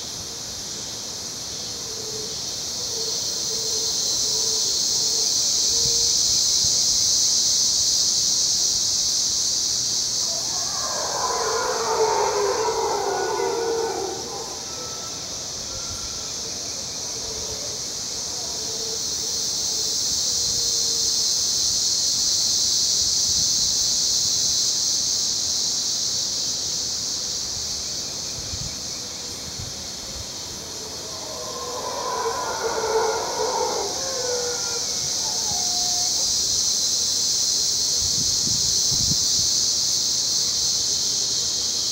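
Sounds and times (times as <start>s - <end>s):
high-pitched insect drone: 0.0s - 41.9s
howler monkeys howling: 10.2s - 19.3s, 29.9s - 36.5s.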